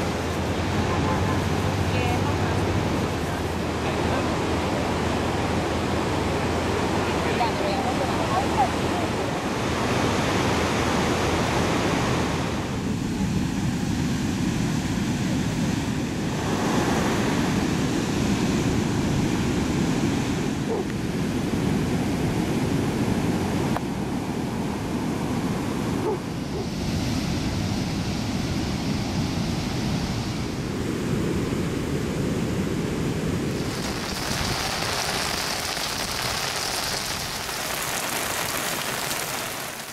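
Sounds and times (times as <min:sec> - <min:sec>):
surf breaking on a beach: 0:00.0 - 0:39.9
wind on microphone: 0:00.0 - 0:39.9
heavy rain falling: 0:33.6 - 0:39.9.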